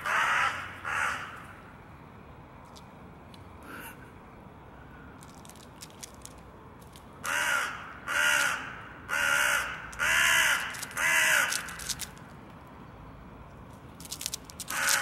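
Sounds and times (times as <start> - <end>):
crow cawing: 0.0 - 1.4, 7.2 - 11.8, 14.7 - 15.0.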